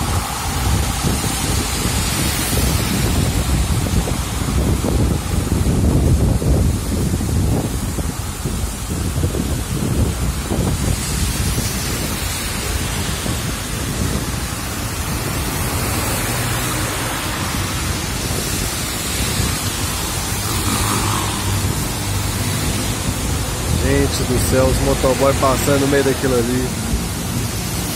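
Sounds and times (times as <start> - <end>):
heavy rain on wet road: 0.0 - 27.9.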